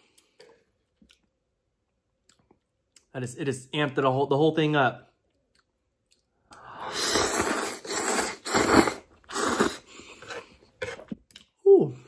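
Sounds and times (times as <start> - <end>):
person chewing: 5.3 - 11.6
person slurping noodles: 6.6 - 11.2.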